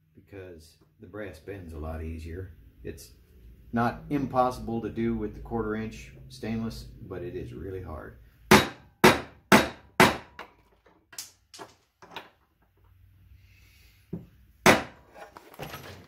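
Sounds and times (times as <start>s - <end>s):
hammer striking metal punch: 8.5s - 10.5s, 14.6s - 15.0s.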